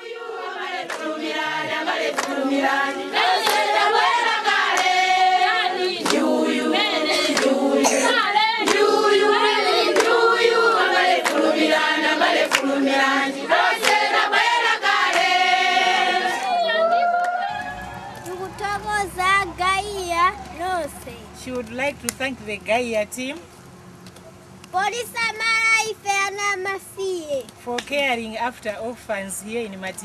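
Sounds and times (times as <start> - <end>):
crowd singing as a choir: 0.0 - 18.3
sharp hand claps: 0.8 - 1.1, 2.1 - 2.4, 3.4 - 3.8, 4.7 - 5.0, 6.0 - 6.2, 7.4 - 7.6, 8.6 - 8.9, 9.9 - 10.2, 11.2 - 11.5, 12.4 - 12.7, 13.8 - 14.1, 15.0 - 15.4.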